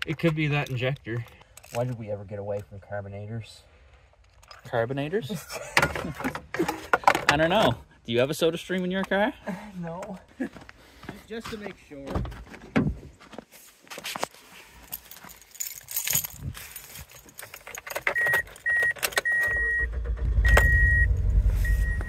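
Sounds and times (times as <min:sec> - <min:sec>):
keys jangling: 0:14.8 - 0:19.3
car engine cranking and misfiring: 0:17.6 - 0:22.0
high beep: 0:18.2 - 0:22.0.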